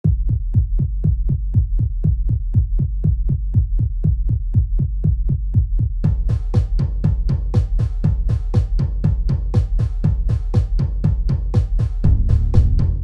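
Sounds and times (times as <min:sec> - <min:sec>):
electronic low beat: 0:00.0 - 0:13.0
drum kit with snare and cymbals: 0:06.0 - 0:13.0
deep held bass: 0:12.0 - 0:13.0.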